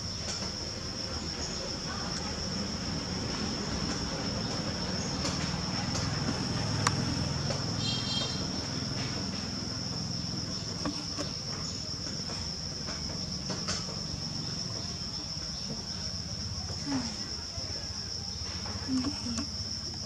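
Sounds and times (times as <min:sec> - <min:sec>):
high-pitched insect trill: 0:00.0 - 0:20.0
potter's wheel rumbling: 0:08.5 - 0:16.8.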